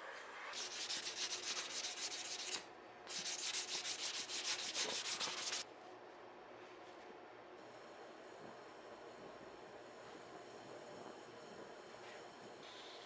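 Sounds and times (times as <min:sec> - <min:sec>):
sandpaper on spinning metal: 0:00.5 - 0:05.6.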